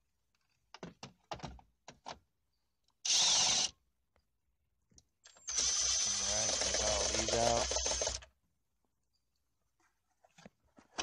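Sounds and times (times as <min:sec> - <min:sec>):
cordless driver running: 0:05.5 - 0:08.3.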